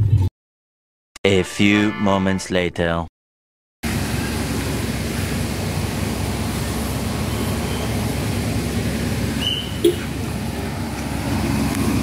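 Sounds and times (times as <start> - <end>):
steady outdoor rumble and hiss: 3.8 - 12.0.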